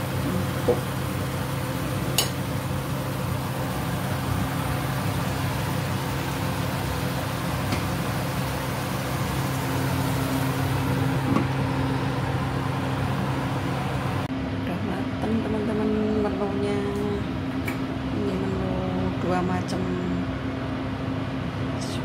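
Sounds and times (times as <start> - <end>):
kitchen fan whirring: 0.0 - 22.0.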